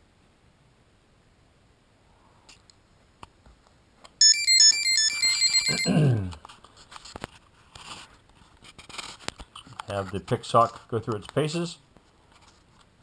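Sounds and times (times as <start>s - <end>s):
buzzer beeping tune: 4.2s - 6.0s.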